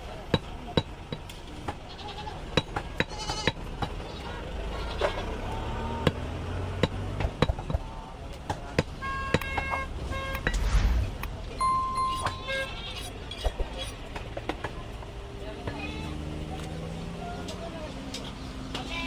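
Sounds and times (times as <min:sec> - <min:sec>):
goats bleating: 0:01.9 - 0:02.4, 0:03.1 - 0:05.3
cleavers knocking on chopping blocks: 0:02.5 - 0:04.0, 0:06.8 - 0:09.7.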